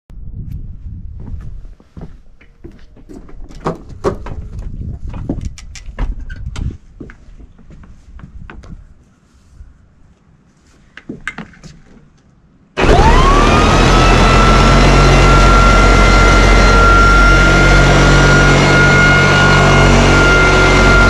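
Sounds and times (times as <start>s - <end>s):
floor sander motor whine: 12.8s - 21.0s.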